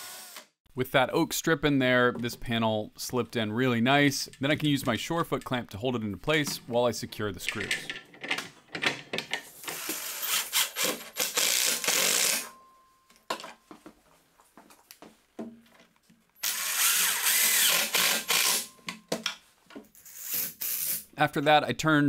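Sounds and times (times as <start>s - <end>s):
power drill driving screws: 0.0s - 0.5s, 9.6s - 12.5s, 16.4s - 18.7s
handling clicks and knocks: 6.4s - 9.8s.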